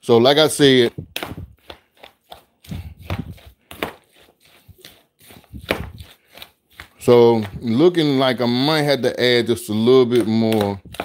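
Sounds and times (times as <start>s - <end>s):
spoon scraping plastic bowl: 0.9s - 11.0s
moist rustling of cabbage: 1.1s - 7.9s.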